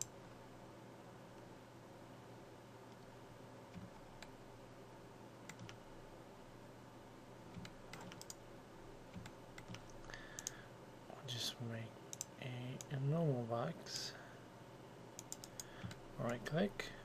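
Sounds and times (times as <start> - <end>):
low steady hum: 0.0 - 17.0
mouse and keyboard clicks: 5.5 - 5.8, 7.5 - 8.4, 9.1 - 10.6, 15.2 - 16.4.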